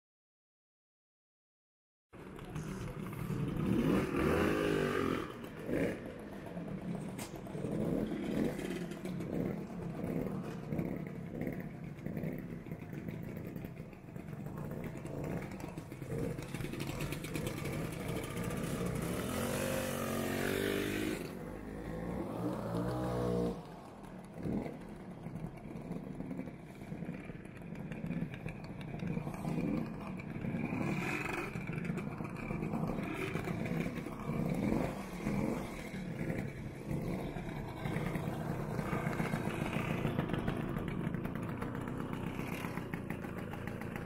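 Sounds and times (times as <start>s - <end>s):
motor scooters idling and revving: 2.2s - 44.0s.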